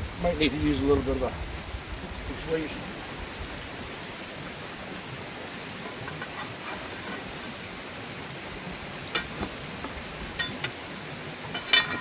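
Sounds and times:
steady outdoor hiss: 0.0s - 12.0s
pry bar tapping and scraping: 5.8s - 7.4s, 9.0s - 10.8s, 11.4s - 12.0s.

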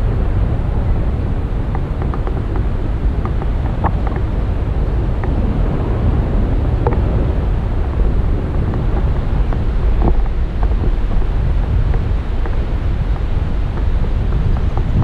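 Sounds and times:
wind buffeting microphone: 0.0s - 15.0s
faint ticks: 1.7s - 4.4s, 5.2s - 5.4s, 6.7s - 7.2s, 7.9s - 15.0s.

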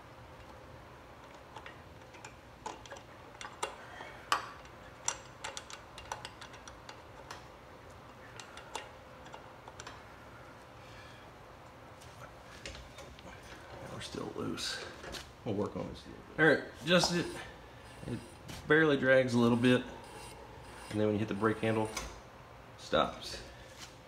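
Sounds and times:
wrench clicking and ticking: 1.3s - 7.4s.

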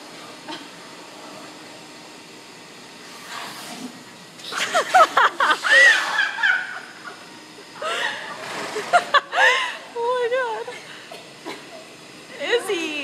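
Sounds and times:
vacuum cleaner hissing: 0.1s - 13.0s
loud laughter: 4.6s - 9.8s.

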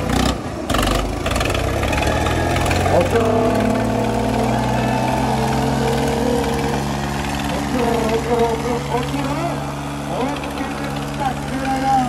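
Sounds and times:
tractor engines droning: 0.0s - 12.0s
voice over loudspeaker: 2.8s - 4.4s, 7.4s - 12.0s.

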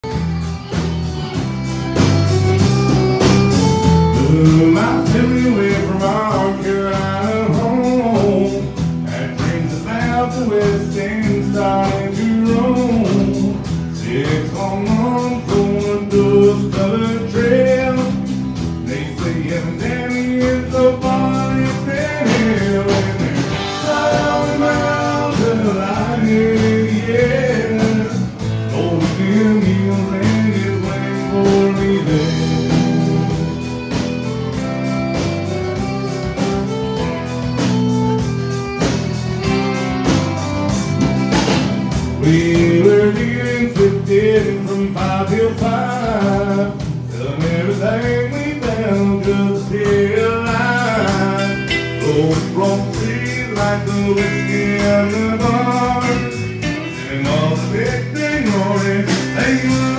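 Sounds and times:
live country band playing: 0.0s - 59.9s
man singing: 3.1s - 35.0s, 40.8s - 59.9s.

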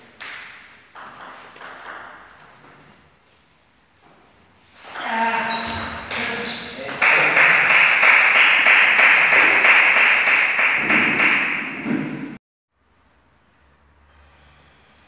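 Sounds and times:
group of people clapping: 6.9s - 11.8s.

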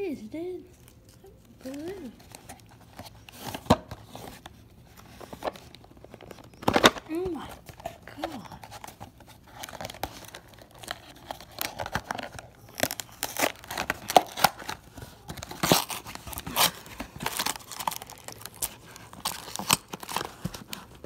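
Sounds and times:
cardboard box tearing: 6.6s - 21.0s.

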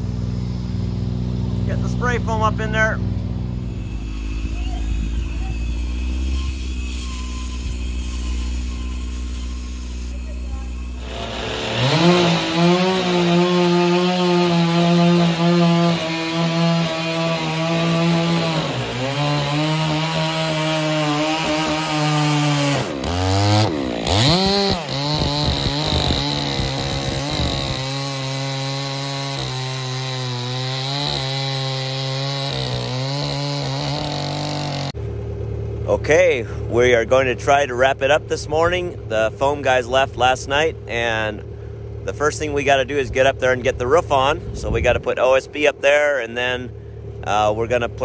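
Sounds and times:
chainsaw cutting wood: 0.0s - 35.0s.

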